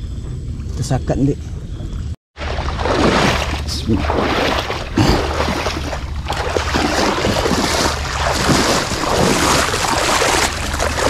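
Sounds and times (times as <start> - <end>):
boat engine drone: 0.0 - 11.0
water rushing: 2.4 - 11.0.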